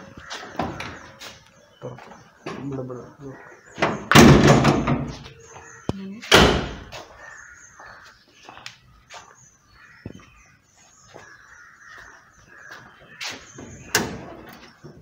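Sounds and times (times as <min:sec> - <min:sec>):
faint bird calls: 0:00.0 - 0:04.2, 0:05.1 - 0:15.0.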